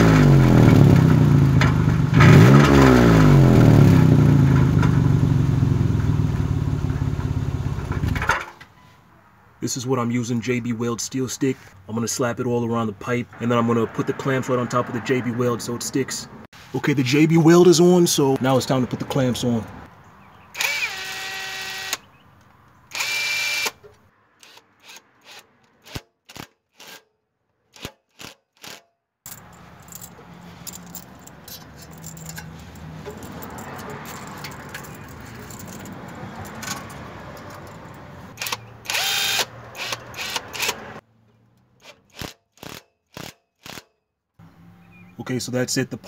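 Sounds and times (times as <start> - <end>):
cordless drill whining: 20.6 - 22.0, 22.9 - 23.8, 38.4 - 40.8
handling noise: 29.3 - 38.4.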